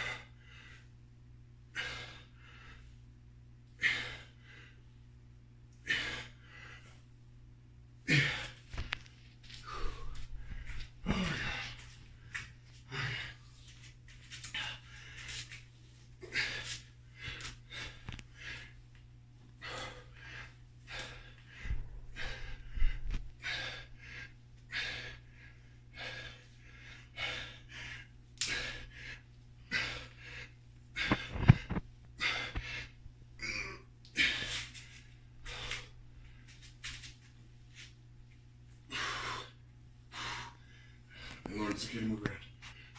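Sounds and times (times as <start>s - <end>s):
steady low hum: 0.0s - 42.9s
man breathing hard: 1.7s - 3.0s, 3.7s - 4.9s, 5.7s - 7.1s, 8.0s - 13.8s, 14.4s - 15.6s, 16.2s - 18.9s, 19.6s - 36.7s, 38.8s - 41.5s.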